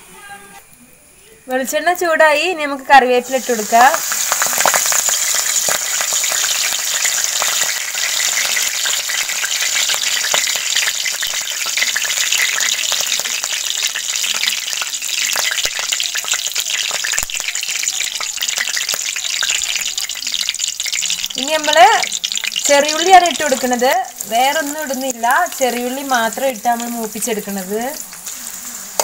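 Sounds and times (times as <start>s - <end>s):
leaves sizzling in hot oil: 2.4s - 29.0s
oil crackling and popping: 3.2s - 29.0s.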